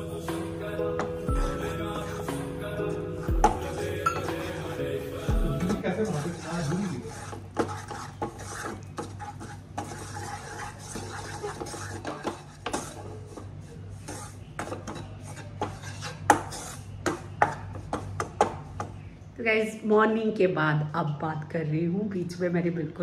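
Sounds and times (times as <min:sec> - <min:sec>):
wooden spatula scraping pan: 0:05.5 - 0:18.3.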